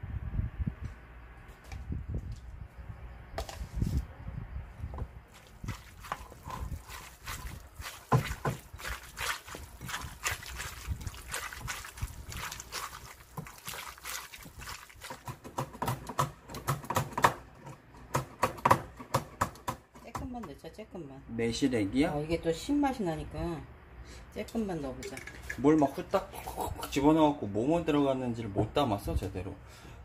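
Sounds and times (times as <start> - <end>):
hands squelching wet greens: 5.3 - 15.5.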